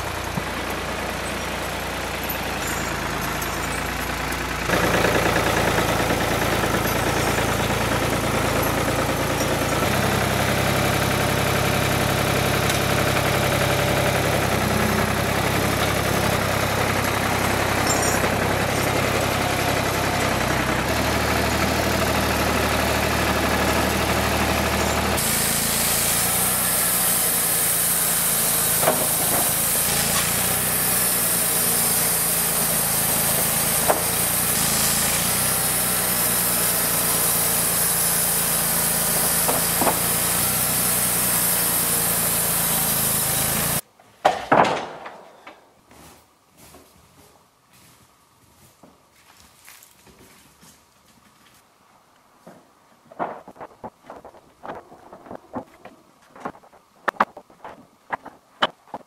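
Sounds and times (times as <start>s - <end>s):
tractor engine running: 0.0s - 43.8s, 53.1s - 59.0s.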